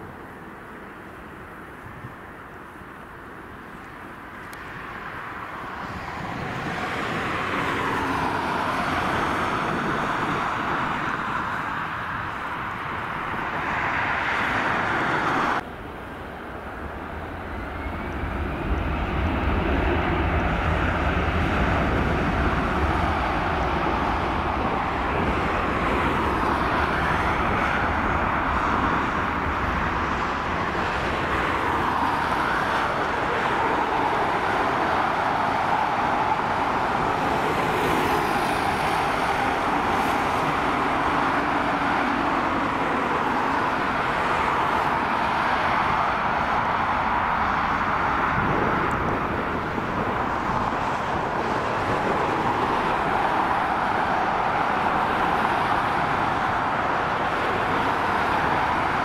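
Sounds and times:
jet engines spooling up: 15.0 - 45.0.

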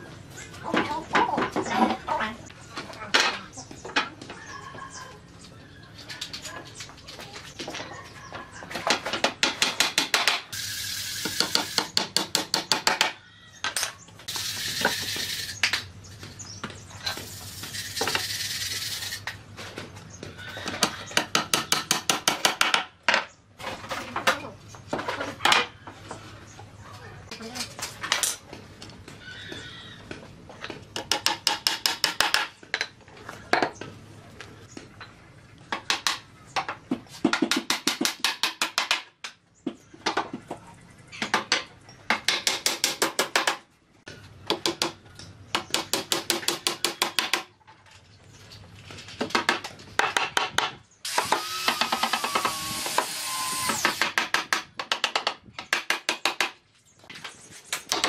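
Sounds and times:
power tool running: 51.1 - 54.0.

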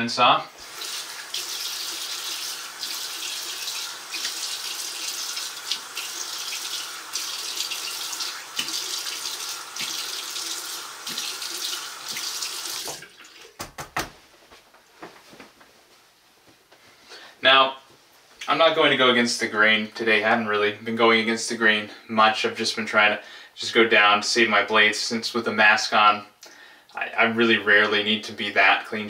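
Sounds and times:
sink tap running: 0.6 - 13.8.

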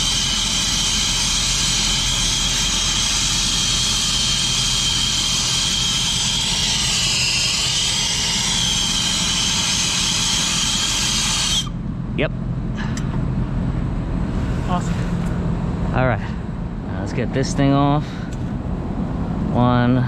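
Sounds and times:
torch flame hissing: 0.0 - 11.7.

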